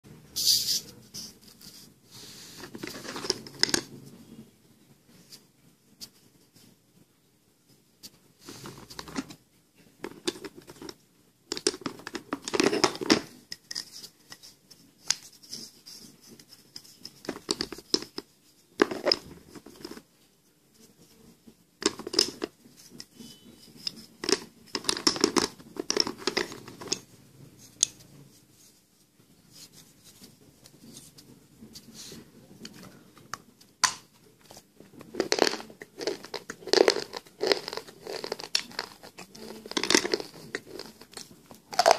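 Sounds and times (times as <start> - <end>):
pencil pieces clattering in box: 2.6 - 3.9, 10.0 - 14.0, 18.8 - 20.0, 21.8 - 22.5, 24.2 - 27.0, 35.0 - 41.9.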